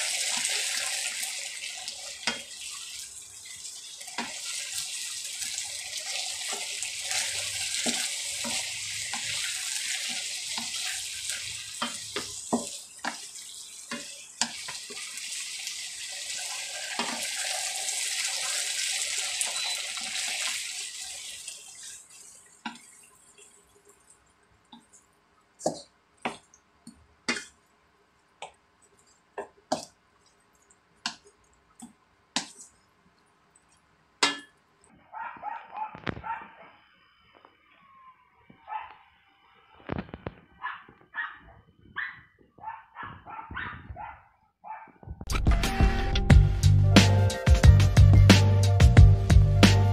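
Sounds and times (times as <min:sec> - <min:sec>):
food sizzling in a wok: 0:00.0 - 0:23.9.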